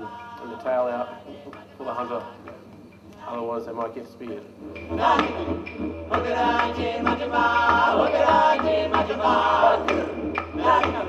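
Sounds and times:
men singing in chant-like harmony: 6.2 - 11.0.

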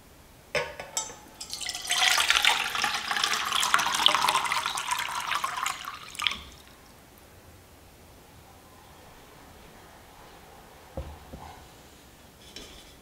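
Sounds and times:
water pouring into metal pot: 1.4 - 6.7.

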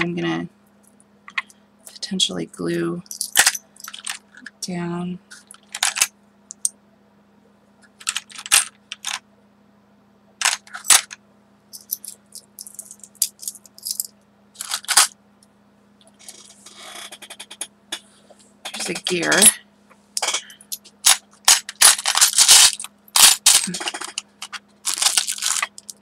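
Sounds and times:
metal charms clinking: 3.0 - 4.2, 11.8 - 15.1, 21.0 - 26.0.

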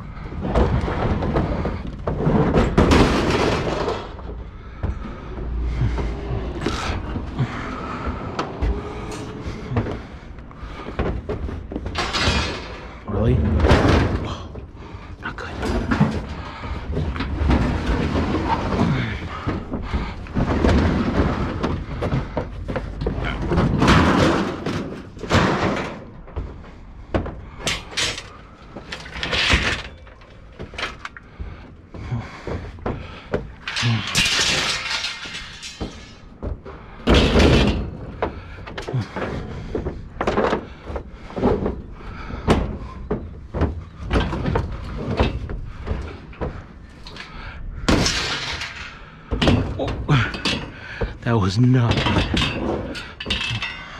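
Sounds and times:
scrap metal clanking and banging: 0.0 - 53.9
low rumble: 4.0 - 10.8.

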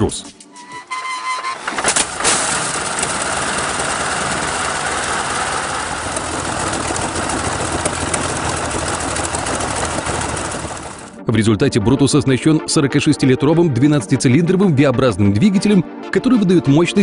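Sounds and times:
aircraft engine running roughly: 1.7 - 11.2.

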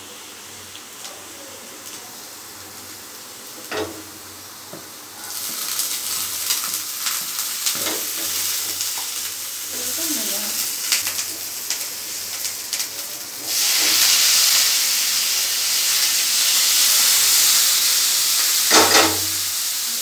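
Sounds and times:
loud crackling sizzle: 0.0 - 20.0
onions frying in oil: 0.0 - 20.0.

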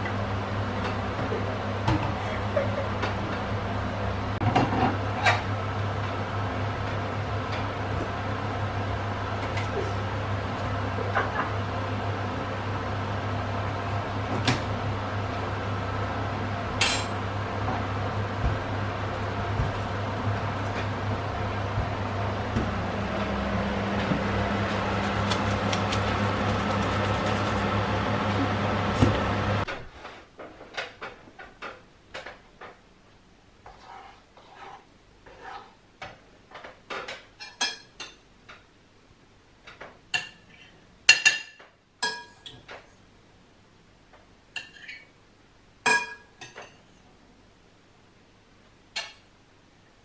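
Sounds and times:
metal utensils scraping a pan: 33.7 - 35.8.

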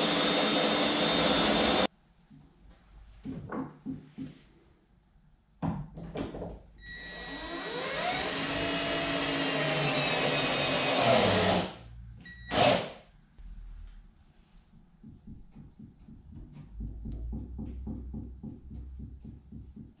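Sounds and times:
power drill boring into wood: 0.0 - 1.9, 7.0 - 11.8, 12.5 - 13.0.

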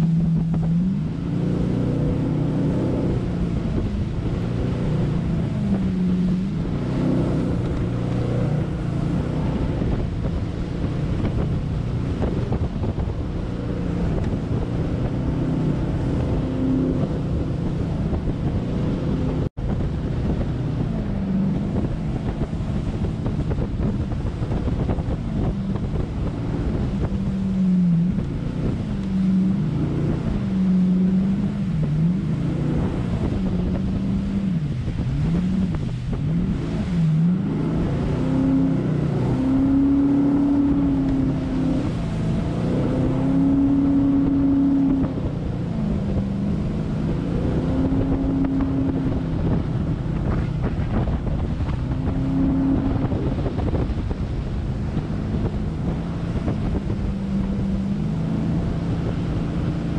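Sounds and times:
boat engine running at speed: 0.0 - 59.9
rushing water: 0.0 - 59.9
wind buffeting microphone: 0.0 - 59.9.

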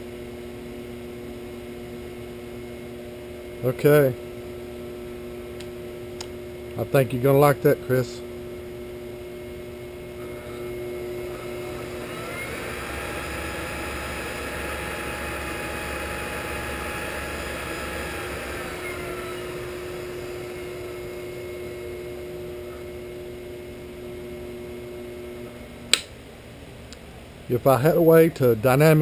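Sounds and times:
motor hum: 0.0 - 29.0
machine spinning with whine: 7.4 - 25.8.

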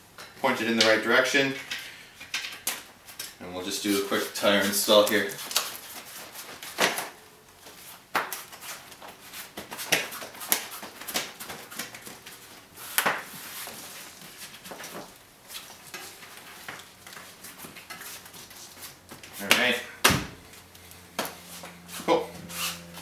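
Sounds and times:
rubber tire scraping against rim: 21.4 - 23.0.

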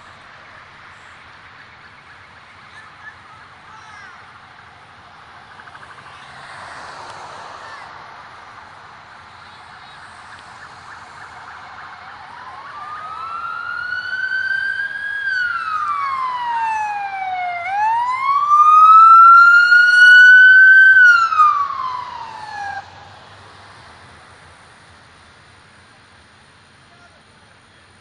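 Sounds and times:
emergency vehicle siren wailing: 5.4 - 23.7.

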